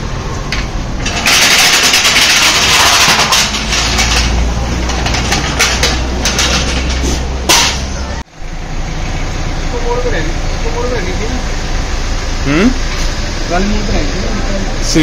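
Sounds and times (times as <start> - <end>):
clicks and knocks: 0.5 - 7.9.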